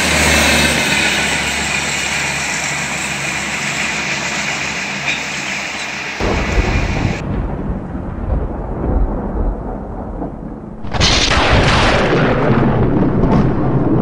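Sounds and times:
loud thunderclap: 6.2s - 14.0s
thunder rumbling: 6.2s - 14.0s.

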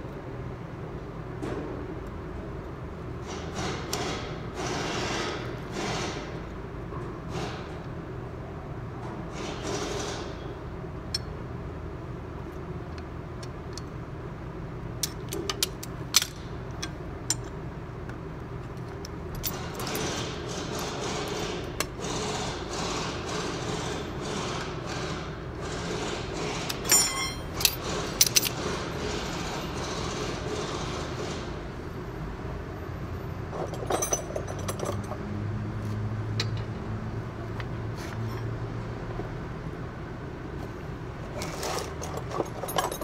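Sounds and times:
workshop background noise: 18.2s - 31.9s
metal tools clinking: 26.8s - 28.6s, 33.6s - 35.2s, 41.4s - 43.0s.

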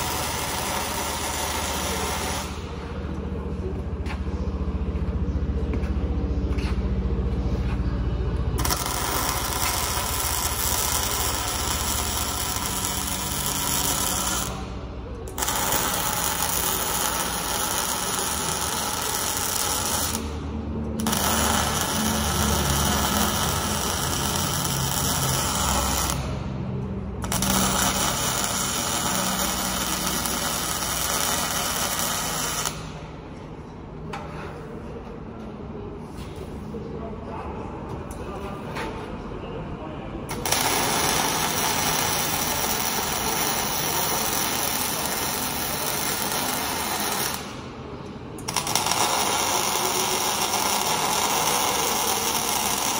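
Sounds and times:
welding arc crackling: 0.0s - 2.8s, 8.4s - 26.5s, 27.1s - 33.0s, 40.3s - 47.7s, 48.4s - 52.9s.

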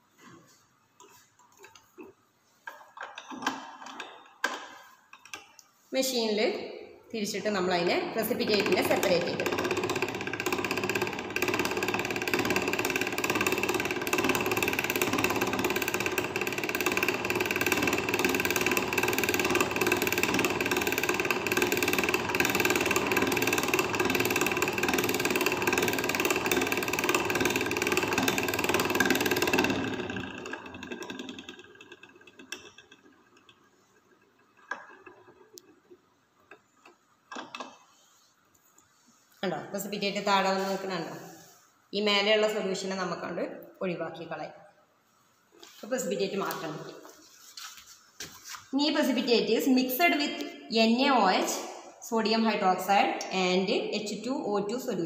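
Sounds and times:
centrifuge whirring: 8.0s - 37.6s.

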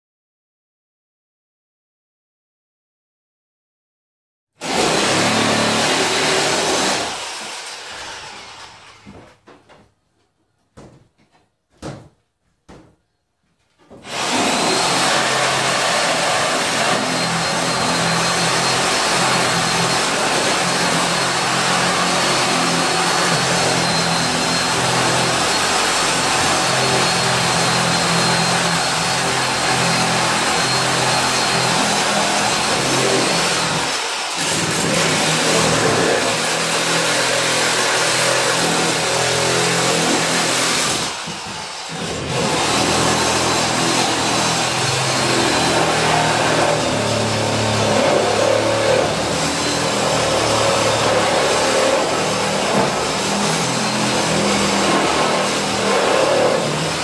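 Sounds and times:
reciprocating saw cutting wood: 14.0s - 57.0s.

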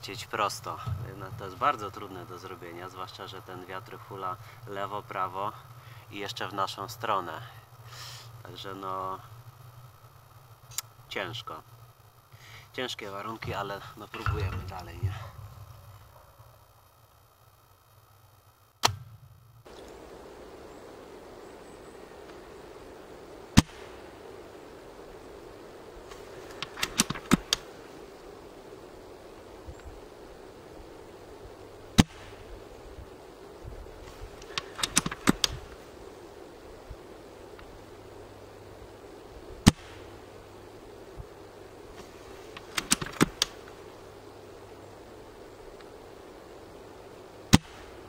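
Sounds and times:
airsoft rifle shot crack: 18.8s - 19.3s, 23.6s - 24.0s, 32.0s - 32.4s, 39.6s - 40.1s, 47.5s - 48.0s
wind noise: 19.6s - 48.0s
rifle bolt clicks and clacks: 42.6s - 43.6s.

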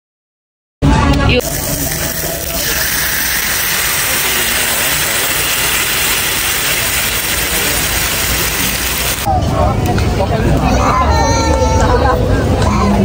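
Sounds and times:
gravy sizzling on hot plate: 1.4s - 9.3s.

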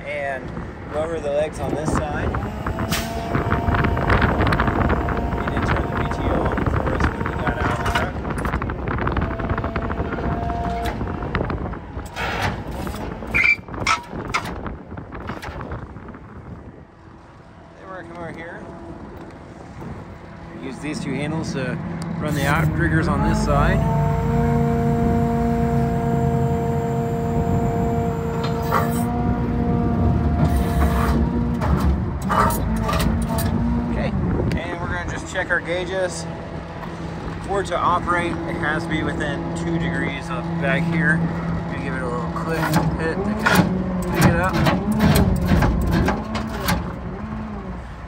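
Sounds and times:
diesel engine running: 0.0s - 48.0s
hydraulic whine: 1.7s - 16.2s, 18.6s - 48.0s
high squeak: 13.3s - 14.0s.

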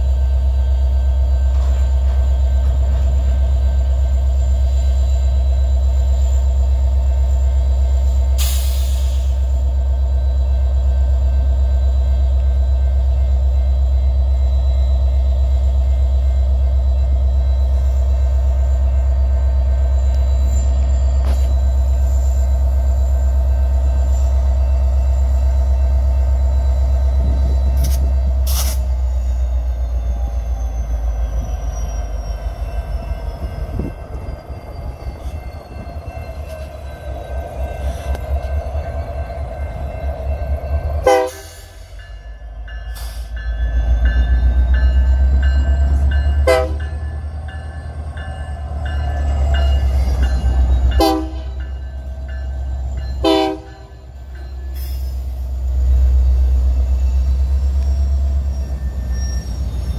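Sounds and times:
locomotive bell ringing: 0.0s - 8.6s, 9.3s - 59.9s
locomotive engine rumble: 0.0s - 59.9s
train horn blasts: 41.0s - 41.8s, 46.4s - 46.9s, 51.0s - 51.6s, 53.2s - 54.0s.

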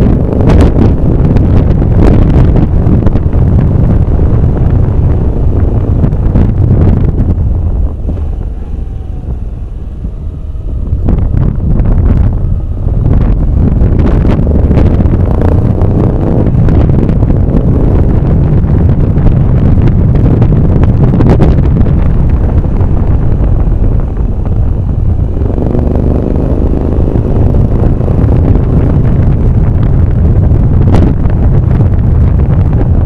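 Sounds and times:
vehicle engine: 0.0s - 33.0s
wind rumble on microphone: 0.0s - 33.0s.

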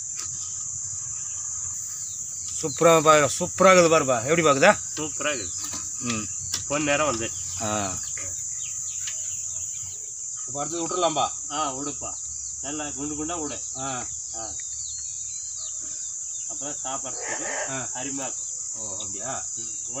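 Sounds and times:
high-pitched insect chorus: 0.0s - 20.0s
men talking: 2.4s - 8.7s, 10.5s - 14.6s, 16.5s - 20.0s.

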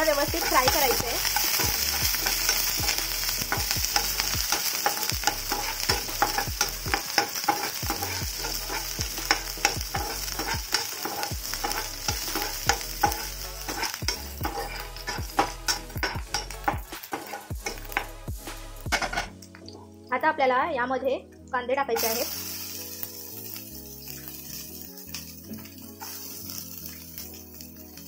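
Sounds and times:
food sizzling in hot oil: 0.0s - 19.5s, 21.9s - 28.0s
spatula scraping and tapping pan: 0.1s - 18.2s, 18.9s - 19.3s.

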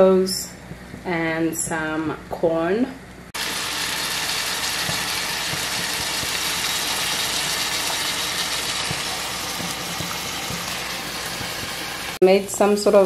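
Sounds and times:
meat sizzling in a pan: 3.4s - 12.2s
oil popping: 3.4s - 12.2s.

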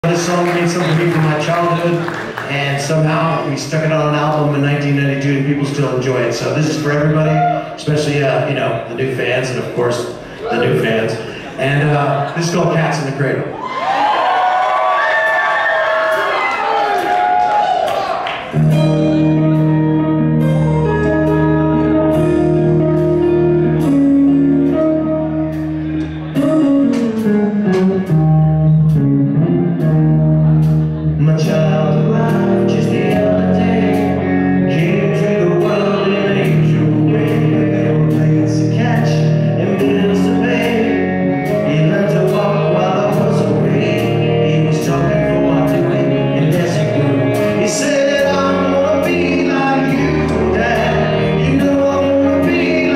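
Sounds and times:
man singing: 0.0s - 13.4s, 31.0s - 52.9s
rock band playing: 0.0s - 17.6s, 18.2s - 52.9s.

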